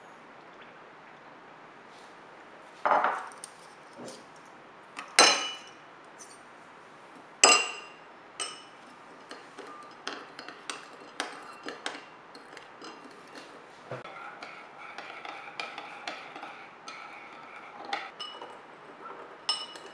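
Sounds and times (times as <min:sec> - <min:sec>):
metal spoons clinking on bowls: 0:05.0 - 0:06.4, 0:07.4 - 0:13.5, 0:14.3 - 0:19.9
spoon stirring juice: 0:08.4 - 0:19.9.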